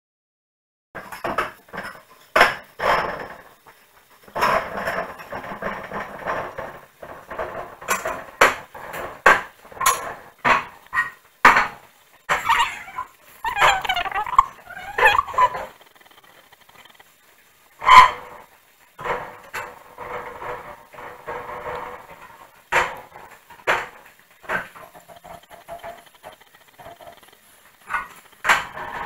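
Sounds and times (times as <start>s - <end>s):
objects knocking and clattering: 1.0s - 29.0s
dog whimpering: 12.3s - 15.8s.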